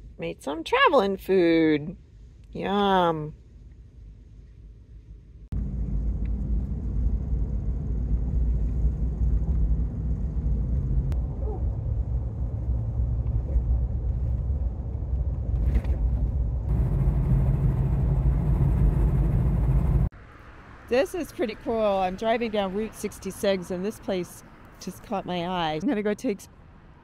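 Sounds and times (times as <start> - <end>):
road and engine rumble in truck cab: 0.0 - 27.0.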